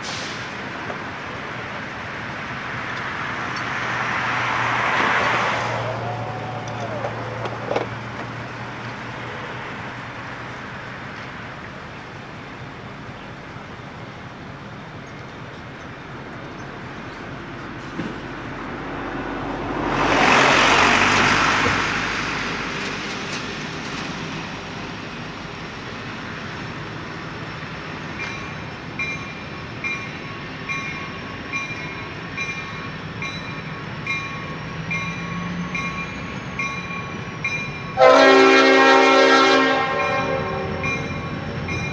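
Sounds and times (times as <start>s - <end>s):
truck passing: 0.0s - 13.5s, 15.6s - 28.9s
diesel engine: 0.0s - 41.9s
locomotive bell ringing: 28.1s - 38.9s, 39.6s - 41.9s.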